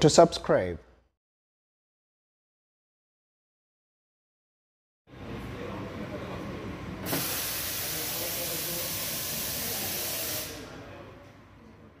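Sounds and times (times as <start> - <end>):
steam hissing: 7.0 - 10.6
espresso machine running: 7.1 - 10.6.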